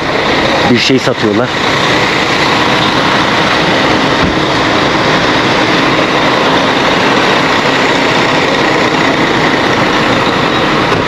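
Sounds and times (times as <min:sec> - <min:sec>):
bus engine idling: 0:00.0 - 0:11.0
faint steady whine: 0:00.0 - 0:11.0.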